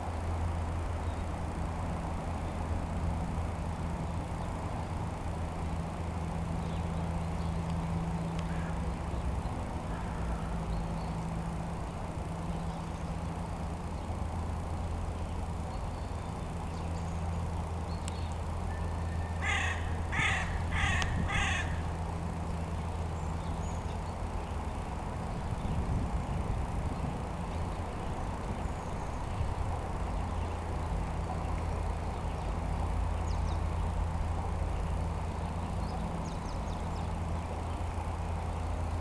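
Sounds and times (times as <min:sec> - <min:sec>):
low background hum: 0:00.0 - 0:39.0
crow cawing: 0:08.5 - 0:08.8, 0:09.9 - 0:10.5, 0:19.4 - 0:21.9.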